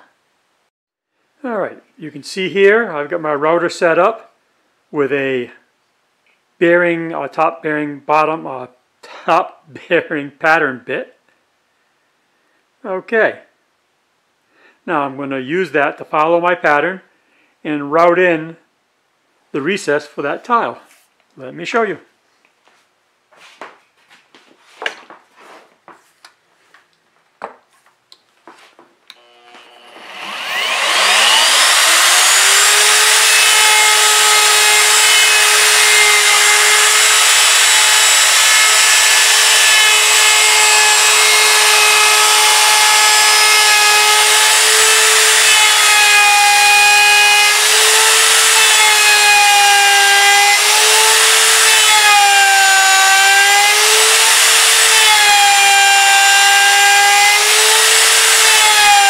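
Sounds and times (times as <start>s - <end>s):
router bit cutting wood: 29.1s - 59.0s
router whining: 29.1s - 59.0s.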